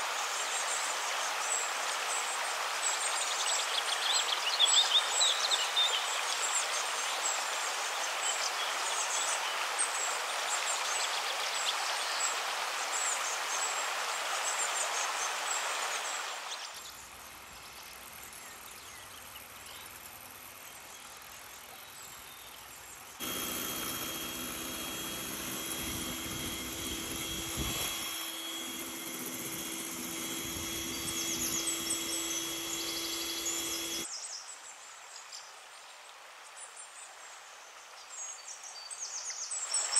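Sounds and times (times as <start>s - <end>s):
outdoor hiss: 0.0s - 34.4s
birds chirping: 23.2s - 34.1s
electric hand mixer whirring: 23.2s - 34.1s.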